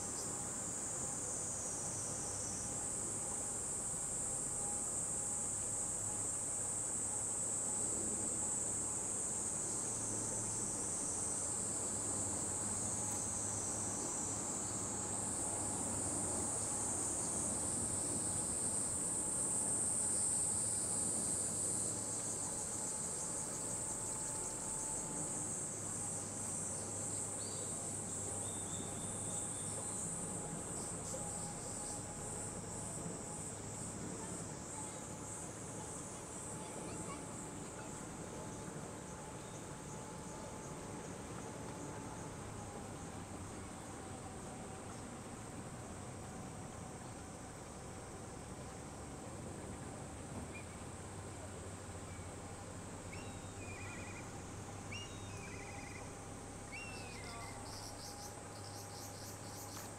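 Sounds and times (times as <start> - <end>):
faint low hum: 0.0 - 59.9
insects shrilling chorus: 54.9 - 56.1, 56.7 - 59.8.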